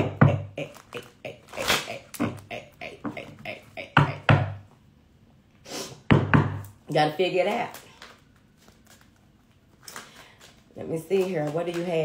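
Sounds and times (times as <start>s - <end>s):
taps and knocks: 6.1s - 6.7s.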